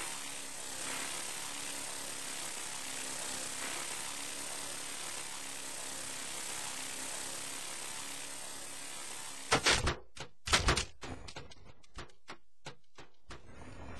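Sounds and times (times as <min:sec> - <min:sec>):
rc helicopter whirring: 0:00.0 - 0:13.9
sharp clattering knocks: 0:09.5 - 0:13.6.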